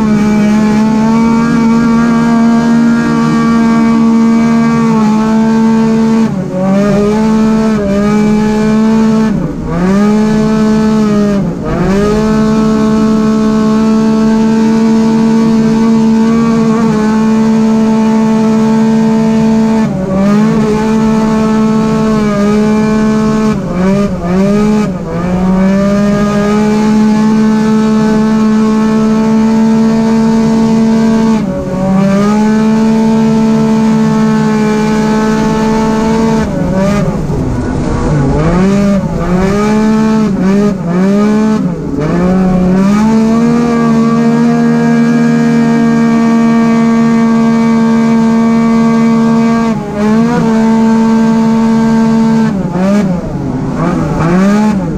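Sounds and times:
engine at high revs: 0:00.0 - 0:54.9.

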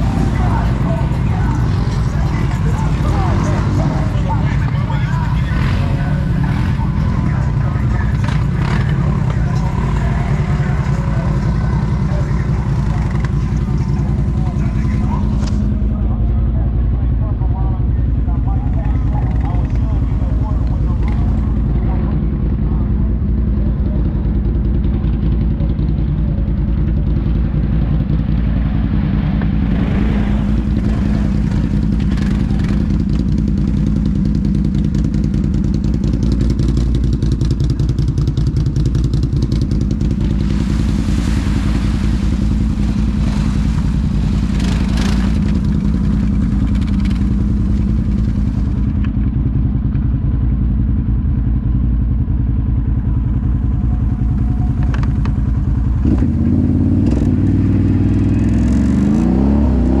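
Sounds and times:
atv engine running: 0:00.0 - 1:00.0.

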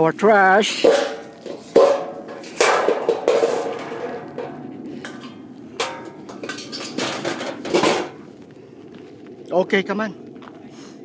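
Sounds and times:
metal trash can clanking: 0:00.7 - 0:08.2.

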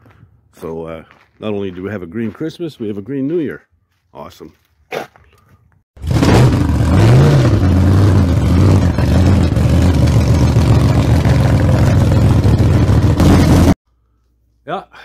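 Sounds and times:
vehicle engine idling: 0:07.5 - 0:13.8.

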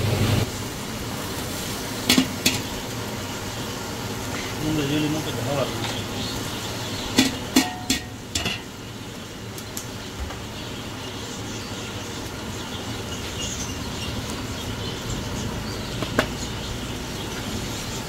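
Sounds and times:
steady background noise: 0:00.0 - 0:18.0
metal plate knocking on pot: 0:07.2 - 0:08.7.

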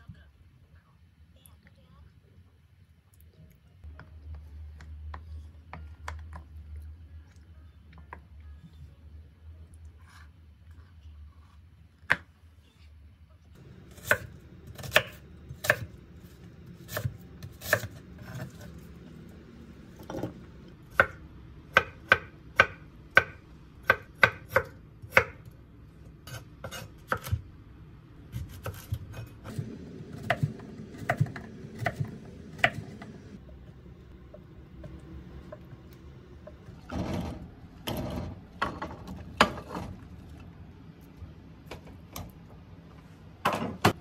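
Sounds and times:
knife chopping on a cutting board: 0:13.9 - 0:15.9, 0:16.8 - 0:18.7, 0:20.9 - 0:25.4, 0:26.3 - 0:27.4, 0:28.3 - 0:33.3.

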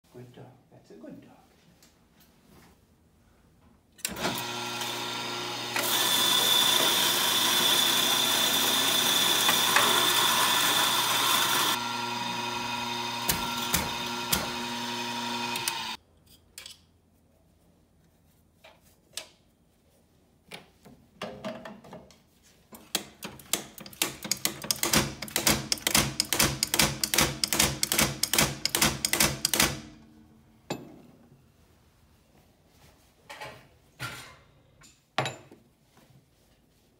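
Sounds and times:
coffee grinder motor whine: 0:04.1 - 0:16.0.

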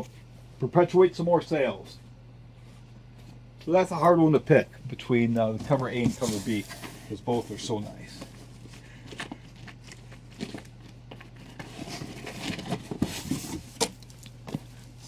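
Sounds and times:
steady low hum: 0:00.0 - 0:15.0
paper and plastic rustling: 0:05.5 - 0:15.0.

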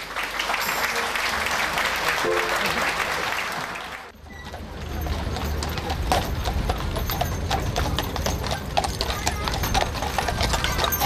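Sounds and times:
hooves clip-clopping on pavement: 0:04.1 - 0:11.0
low carriage rumble: 0:04.1 - 0:11.0.

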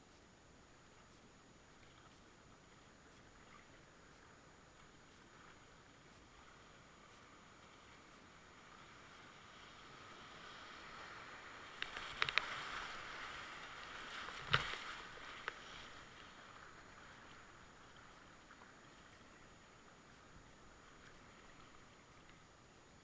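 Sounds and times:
rushing whitewater: 0:06.1 - 0:23.0
kayak knocks and splashes: 0:14.1 - 0:15.6.

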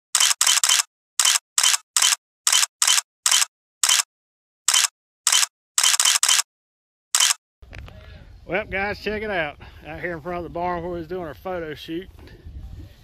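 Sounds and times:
camera shutter clicks: 0:00.2 - 0:04.1, 0:04.7 - 0:06.5, 0:07.2 - 0:07.4.

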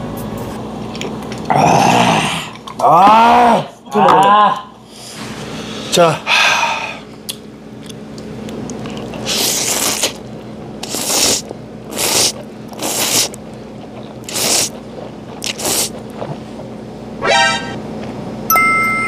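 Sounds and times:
man slurping noodles: 0:09.2 - 0:10.2, 0:10.8 - 0:16.7.

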